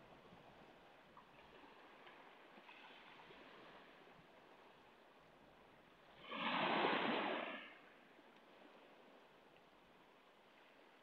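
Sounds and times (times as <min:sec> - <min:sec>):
faint hiss of the sea: 0:00.0 - 0:11.0
wave breaking on pebble shore: 0:06.2 - 0:07.8.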